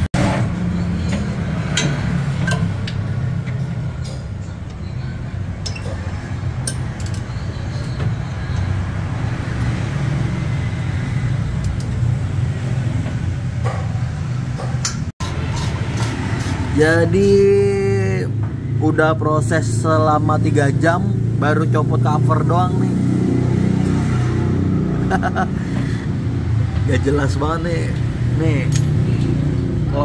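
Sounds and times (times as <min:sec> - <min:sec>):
socket wrench clinking on metal: 0:05.6 - 0:08.0, 0:28.7 - 0:29.2.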